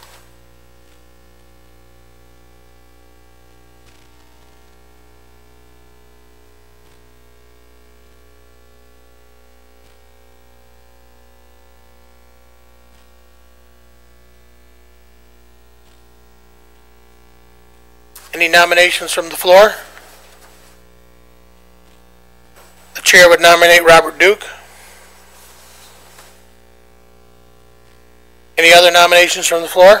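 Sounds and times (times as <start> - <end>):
mains hum with hiss: 0.0 - 30.0
faint ticks: 15.8 - 16.1.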